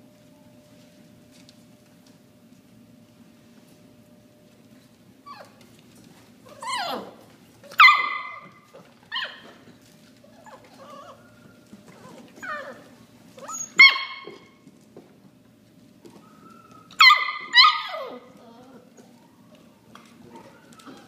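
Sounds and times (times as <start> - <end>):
puppies barking and yipping: 6.5 - 14.6, 16.1 - 19.2.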